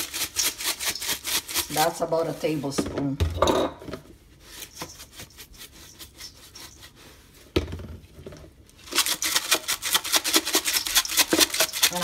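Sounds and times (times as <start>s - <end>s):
spice shaker rattling: 8.8s - 12.0s.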